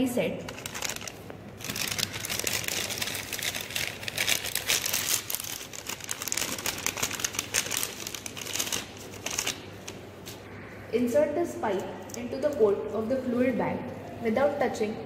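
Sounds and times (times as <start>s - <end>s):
plastic packaging crinkling: 0.2s - 10.4s.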